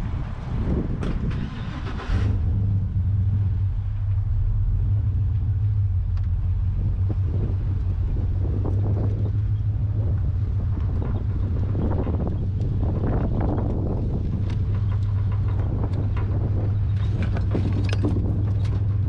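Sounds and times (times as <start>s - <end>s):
heavy equipment engine droning: 0.0s - 19.0s.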